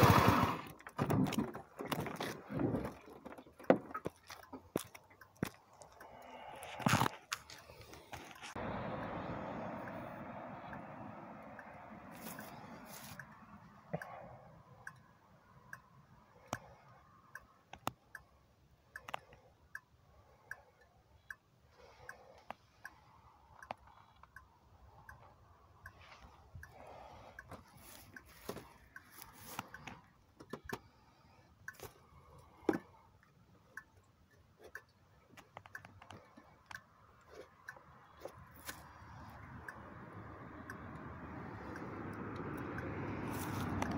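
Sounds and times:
irregular clicks and ticks: 0.7s - 8.6s, 10.6s - 43.9s
soft repeating tick: 4.4s - 6.6s, 9.8s - 43.9s
fuller noise: 4.4s - 15.8s.

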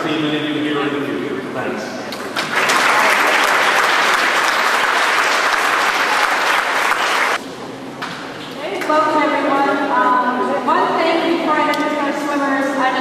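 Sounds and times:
audience applauding: 2.2s - 7.4s.

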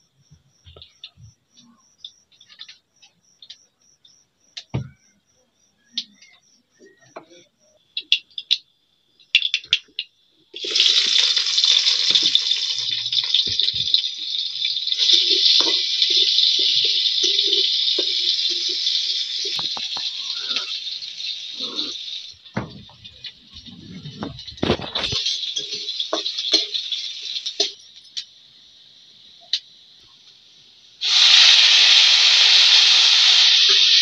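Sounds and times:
oil crackling: 9.3s - 28.2s
onions sizzling in oil: 9.3s - 34.0s.

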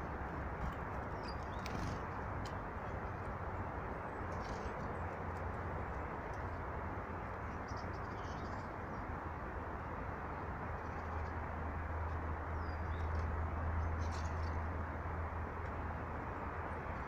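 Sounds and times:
small songbirds calling: 1.0s - 2.2s, 7.4s - 9.2s, 12.4s - 14.7s.

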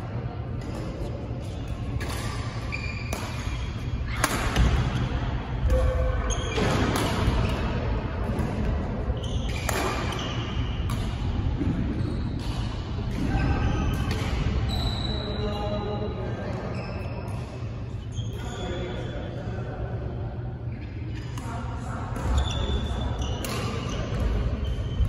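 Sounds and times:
racket hitting shuttlecock: 0.6s - 8.8s, 9.4s - 14.5s
shoe squeaks on court floor: 1.4s - 4.0s, 11.9s - 12.6s, 14.6s - 19.1s.

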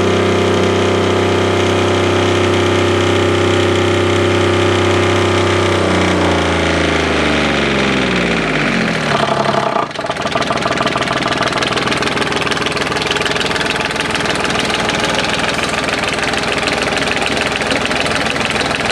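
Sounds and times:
diesel engine slowing to idle: 0.0s - 18.9s.

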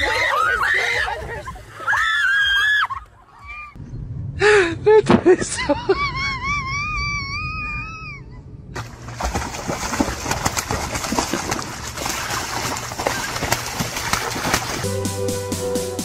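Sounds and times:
ducks splashing in water: 8.8s - 14.9s.

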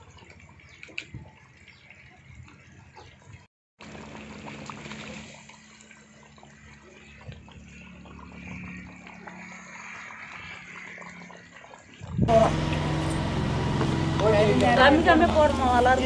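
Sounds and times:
curry bubbling in a pot: 3.8s - 12.3s.

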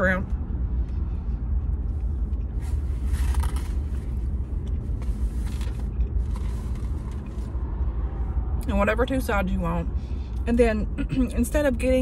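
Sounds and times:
car engine rumble: 0.0s - 12.0s.

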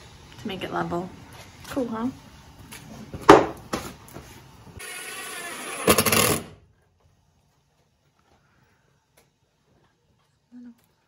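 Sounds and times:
cordless drill driving screw: 4.8s - 6.5s.

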